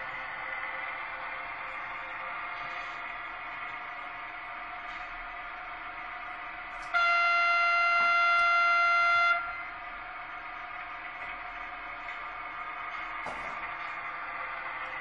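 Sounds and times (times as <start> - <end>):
locomotive running hum: 0.0 - 15.0
model locomotive horn blast: 6.8 - 9.7.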